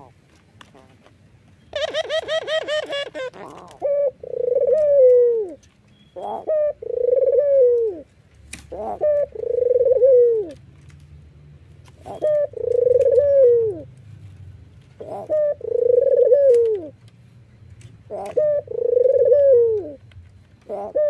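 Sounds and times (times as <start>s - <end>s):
dove cooing: 1.7s - 5.6s, 6.2s - 8.1s, 8.7s - 10.6s, 12.0s - 13.9s, 14.9s - 17.0s, 18.1s - 20.0s, 20.6s - 21.0s.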